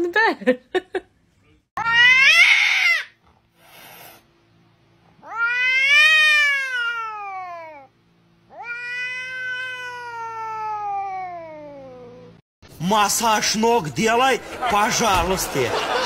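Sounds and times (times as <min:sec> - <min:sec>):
cat meowing: 0:01.8 - 0:03.2, 0:05.2 - 0:07.9, 0:08.5 - 0:12.3.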